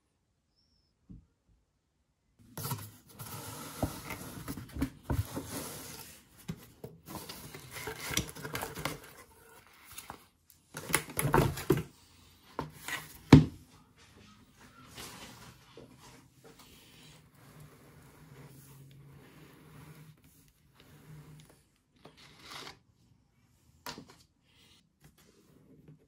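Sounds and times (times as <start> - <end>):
packaging rustling and scraping: 2.5 - 11.9.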